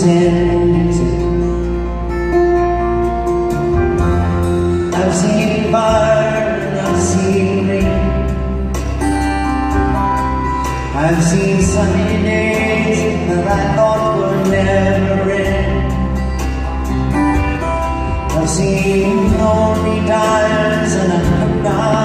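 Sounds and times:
man singing: 0:00.0 - 0:01.9, 0:04.8 - 0:08.8, 0:10.6 - 0:16.4, 0:18.0 - 0:22.0
acoustic guitar: 0:00.0 - 0:22.0
grand piano: 0:00.0 - 0:22.0.

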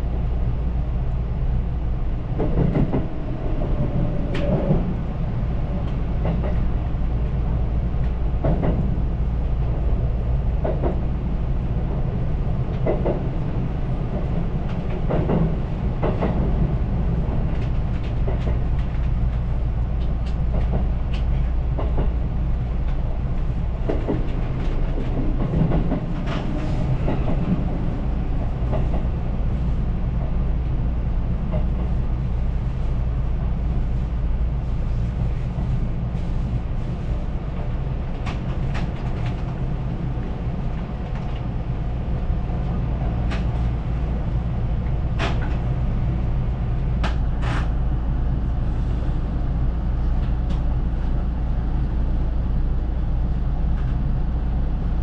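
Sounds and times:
train low rumble: 0:00.0 - 0:55.0.

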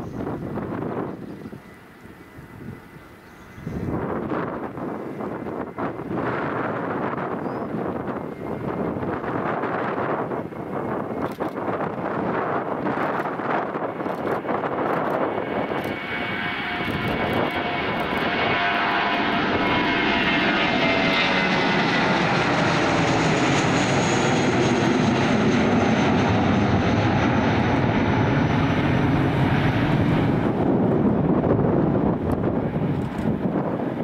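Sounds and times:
jet engines roaring: 0:00.0 - 0:34.0
whining tones gliding lower: 0:12.7 - 0:34.0.

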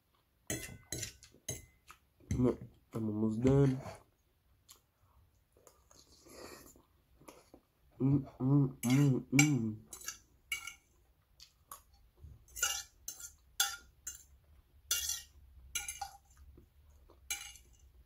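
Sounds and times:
person humming: 0:08.0 - 0:09.8
fork scraping a ceramic plate: 0:12.5 - 0:14.3, 0:14.9 - 0:16.2, 0:17.3 - 0:17.9.

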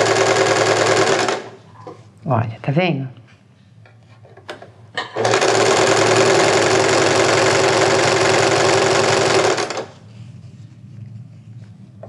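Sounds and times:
sewing machine running: 0:00.0 - 0:01.6, 0:05.2 - 0:10.0.

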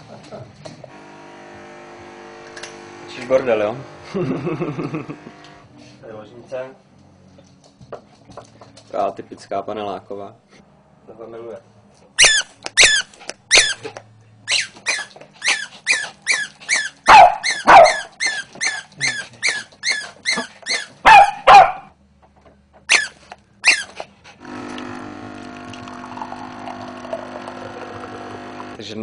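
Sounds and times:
coffee machine pump humming: 0:00.9 - 0:05.6, 0:24.4 - 0:28.8
small dog yapping: 0:12.2 - 0:21.9
dog barking deeply: 0:17.1 - 0:18.1, 0:21.0 - 0:21.9.

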